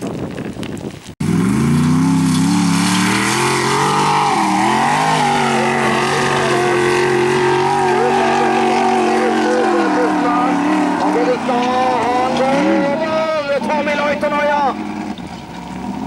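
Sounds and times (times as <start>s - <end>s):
wind noise on microphone: 0.0s - 1.2s
race car engine high-revving: 1.2s - 16.0s.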